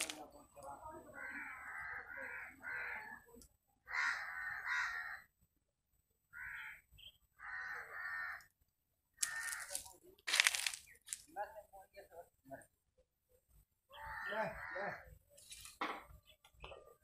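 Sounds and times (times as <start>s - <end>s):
crow cawing: 1.1s - 5.3s, 6.3s - 8.5s, 9.2s - 9.9s, 13.9s - 15.1s.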